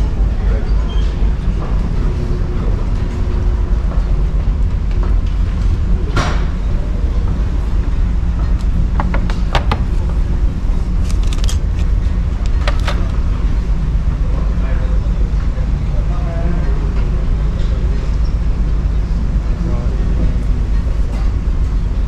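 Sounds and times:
ferry engine rumble: 0.0 - 22.0
sharp clicks and knocks: 8.4 - 10.2.

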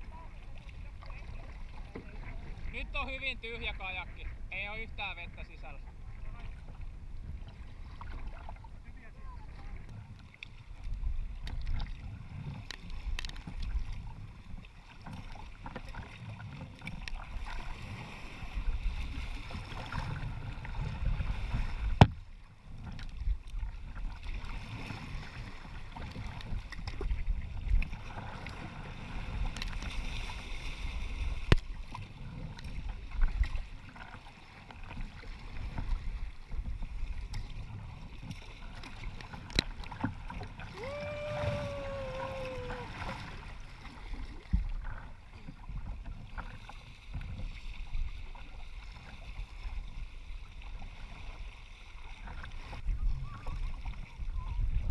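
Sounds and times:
waves splashing along hull: 0.0 - 54.9
wind noise on microphone: 17.3 - 33.7, 39.5 - 46.3, 52.5 - 54.9.

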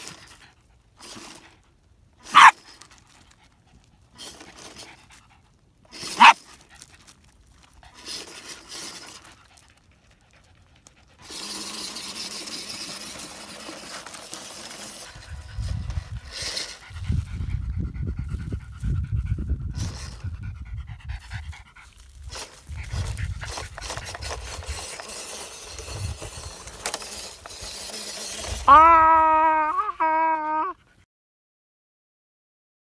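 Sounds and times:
toy electric motor whining: 0.0 - 1.6, 2.2 - 3.4, 4.1 - 5.3, 5.9 - 17.8, 19.7 - 20.4, 22.2 - 30.8
small dog panting: 3.1 - 13.2, 14.6 - 25.5.

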